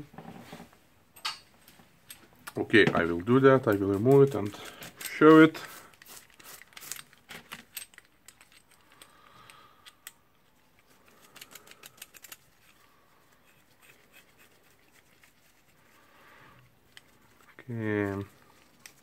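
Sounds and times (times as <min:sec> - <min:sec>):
faint clicks and metal clinks: 0:06.8 - 0:13.0.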